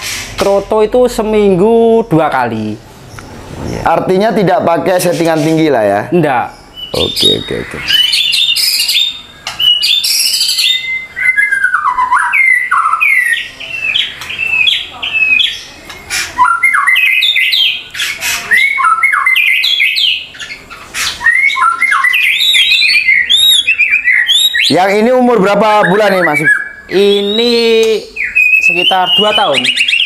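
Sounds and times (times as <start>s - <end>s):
bird singing whistled song: 6.5s - 30.0s.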